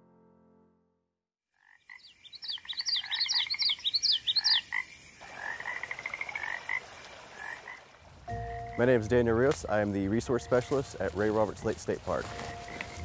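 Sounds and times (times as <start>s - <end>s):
frogs chirping: 1.6s - 9.0s
frog pulsed trill: 8.3s - 8.9s.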